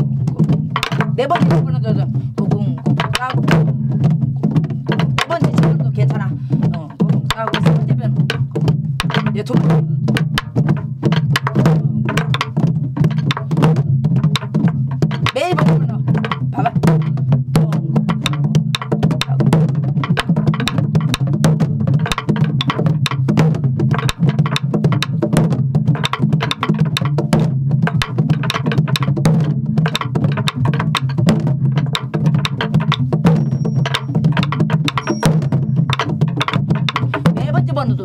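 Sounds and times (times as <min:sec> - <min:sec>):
drumsticks clacking on wooden shell: 0:00.7 - 0:01.4, 0:02.8 - 0:03.4, 0:08.3 - 0:09.5, 0:10.2 - 0:13.6, 0:14.3 - 0:17.1, 0:18.2 - 0:19.4, 0:20.0 - 0:21.3, 0:22.0 - 0:23.3, 0:23.9 - 0:25.3, 0:25.9 - 0:37.3
barrel drum palm strokes: 0:18.0 - 0:37.4.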